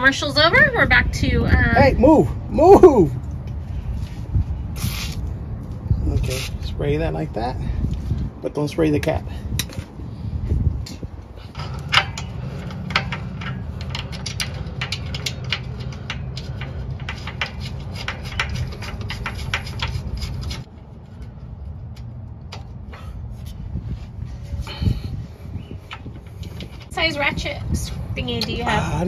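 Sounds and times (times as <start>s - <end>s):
small metal parts clicking: 11.5s - 20.7s.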